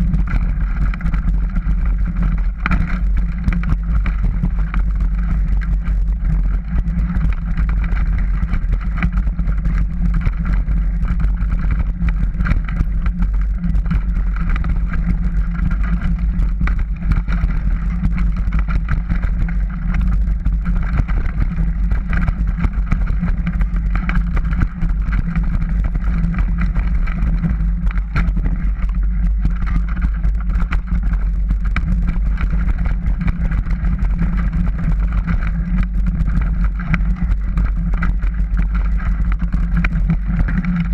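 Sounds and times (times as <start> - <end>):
bike rattling and knocking: 0.0 - 40.9
wind rumble on microphone: 0.0 - 40.9.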